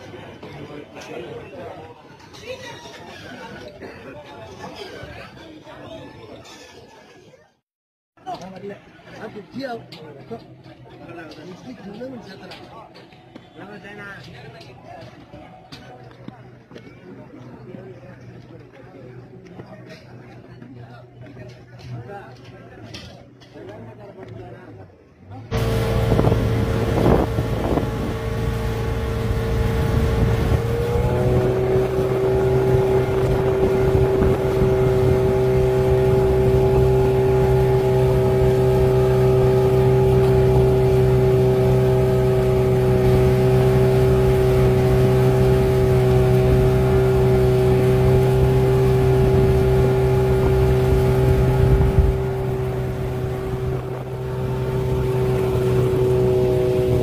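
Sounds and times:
low rumble: 25.5 - 57.0
motorboat engine running: 25.5 - 57.0.

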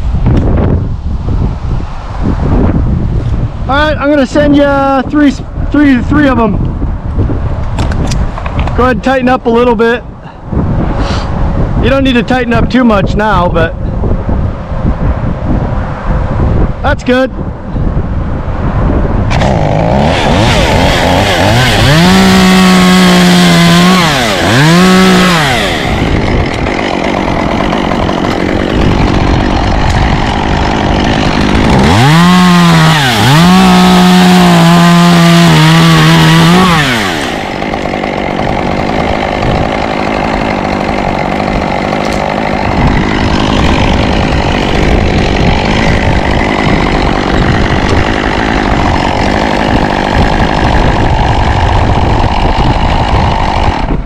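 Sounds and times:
wind noise: 0.0 - 54.0
chainsaw low rough rumble: 19.2 - 54.0
chainsaw at full throttle cutting wood: 19.3 - 54.0.

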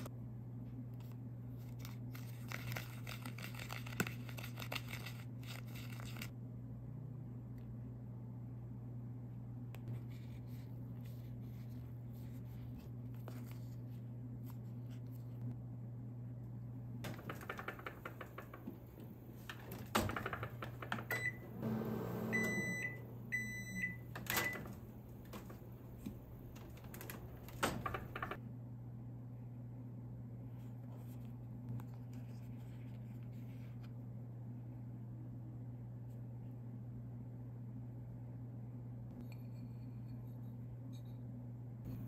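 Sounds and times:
steady low hum: 0.0 - 42.0
microwave door shutting: 17.1 - 28.4.

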